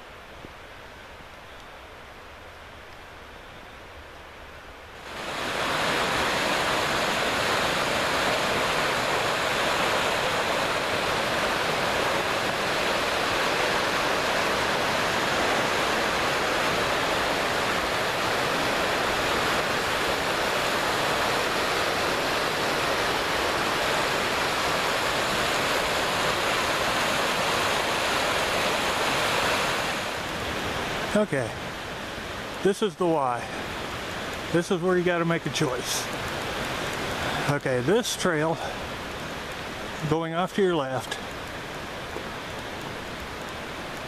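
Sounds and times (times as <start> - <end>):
creek rushing over boulders: 0.0 - 44.0.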